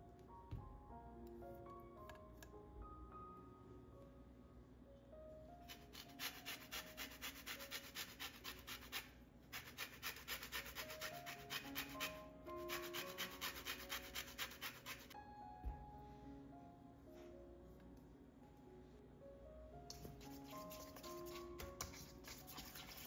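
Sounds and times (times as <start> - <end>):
soft background music: 0.0 - 23.0
grater scraping orange peel: 5.7 - 15.2.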